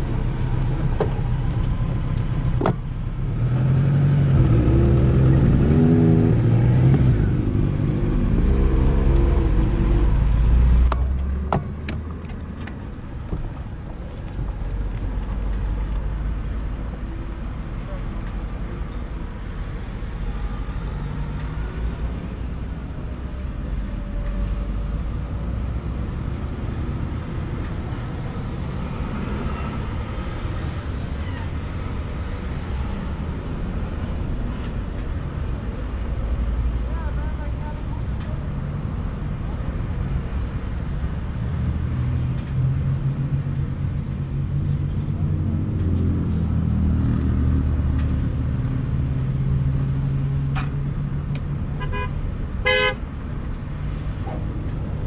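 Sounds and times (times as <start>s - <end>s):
freeway traffic rumble: 0.0s - 55.0s
vehicle engine humming: 0.0s - 55.0s
vehicle horn honking: 51.8s - 53.0s.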